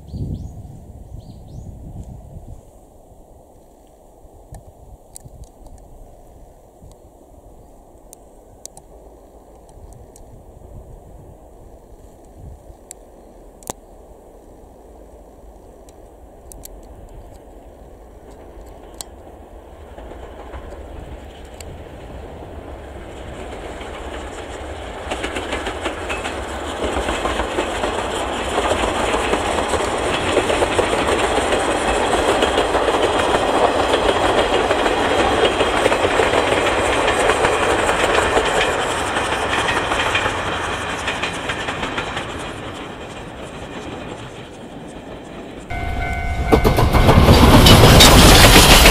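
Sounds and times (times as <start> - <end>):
steam train rumble: 5.8 - 48.9
wheels clickety-clack: 18.2 - 48.9.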